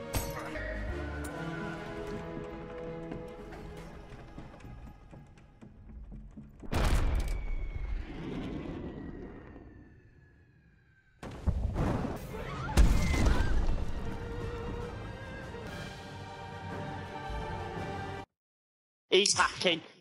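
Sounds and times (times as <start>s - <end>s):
cannon blast: 6.7s - 8.2s
falling whistle of a shell: 6.9s - 10.8s
explosions: 11.2s - 14.0s.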